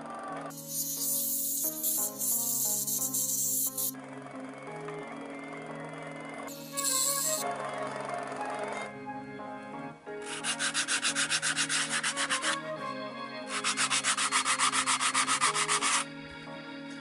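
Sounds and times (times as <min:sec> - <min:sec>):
sandpaper scratching wood: 0:00.5 - 0:03.9, 0:06.6 - 0:07.4, 0:10.3 - 0:12.6, 0:13.5 - 0:16.1.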